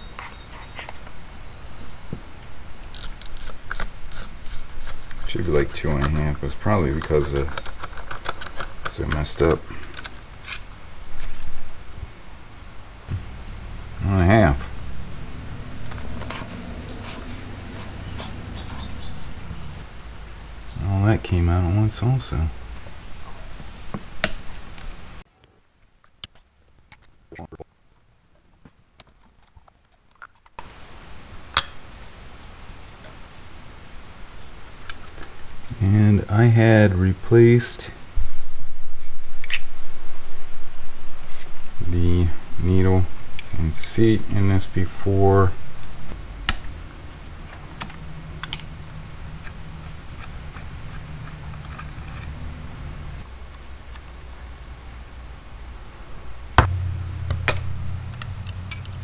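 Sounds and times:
low steady hum: 0:00.0 - 0:29.7, 0:30.6 - 0:59.0
small metal parts clicking: 0:07.0 - 0:09.2, 0:49.4 - 0:52.4.

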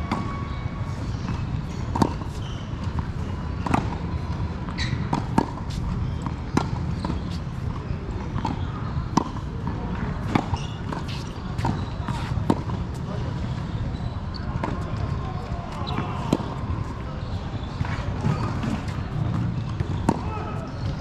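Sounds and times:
tennis ball struck by rackets: 0:01.2 - 0:04.0, 0:04.9 - 0:07.3, 0:08.4 - 0:12.8, 0:18.3 - 0:20.3.

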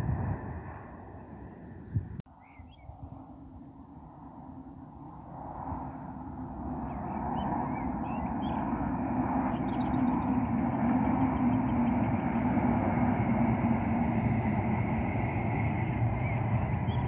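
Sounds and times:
high-speed train rushing rumble: 0:00.0 - 0:02.1, 0:03.3 - 0:17.0
small birds chirping: 0:01.8 - 0:03.0, 0:06.8 - 0:12.6, 0:15.3 - 0:17.0.

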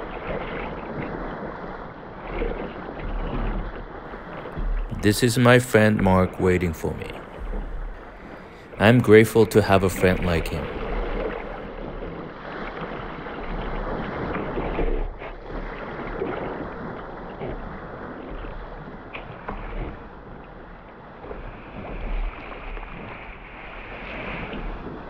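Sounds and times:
water splashing around kayak: 0:00.0 - 0:25.0
wind buffeting microphone: 0:02.8 - 0:05.2.

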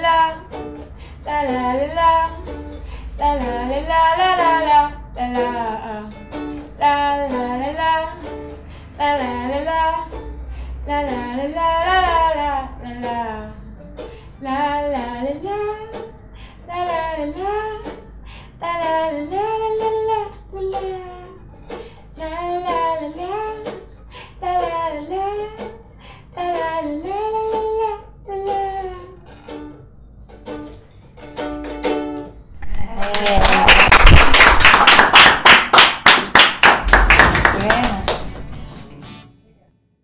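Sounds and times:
woman singing: 0:00.0 - 0:00.6, 0:01.2 - 0:02.6, 0:03.2 - 0:06.2, 0:06.8 - 0:08.4, 0:09.0 - 0:10.2, 0:10.9 - 0:13.6, 0:14.4 - 0:16.0, 0:16.7 - 0:18.0, 0:18.6 - 0:21.4, 0:22.2 - 0:23.8, 0:24.4 - 0:25.7, 0:26.4 - 0:29.2
strummed ukulele: 0:00.0 - 0:39.4
loud clapping: 0:32.7 - 0:38.7.

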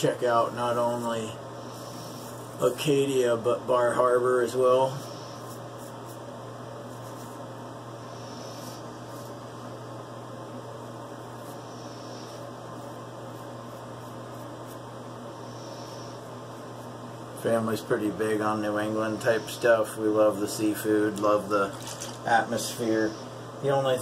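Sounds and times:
steady low hum: 0:00.0 - 0:24.0
razor scraping stubble: 0:11.2 - 0:15.0.

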